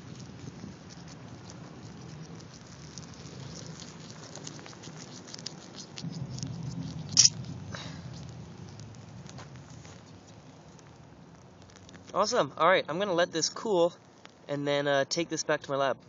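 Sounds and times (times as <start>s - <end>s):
thermite crackling: 0.0s - 16.0s
sharp snap: 7.1s - 7.4s.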